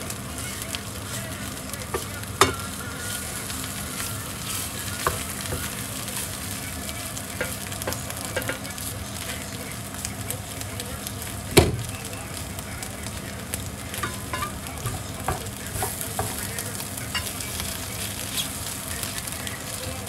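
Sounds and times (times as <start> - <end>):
mushrooms sizzling in a pan: 0.0 - 20.0
utensil knocking against pan: 1.9 - 2.6, 7.4 - 8.6, 14.0 - 16.5.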